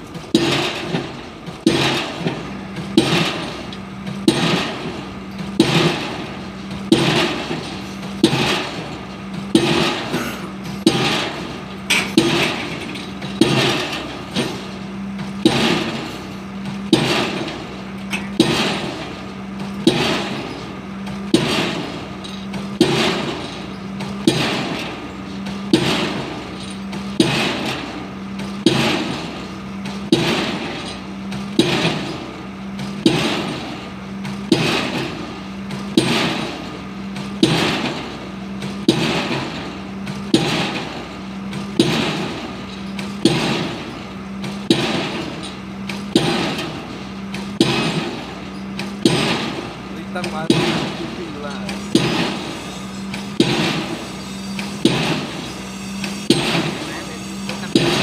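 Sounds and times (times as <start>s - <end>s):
pile hammer striking: 0.3s - 14.7s, 15.4s - 19.2s, 19.8s - 20.6s, 21.2s - 28.0s, 28.6s - 33.8s, 34.5s - 58.0s.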